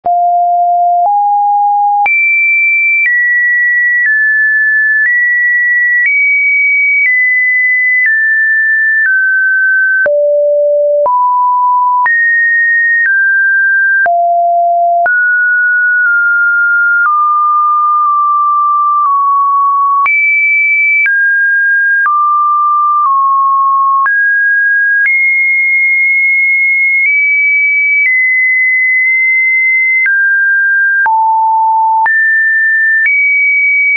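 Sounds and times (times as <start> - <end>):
sine tone changing pitch: 6.0 - 12.5, 14.0 - 24.2.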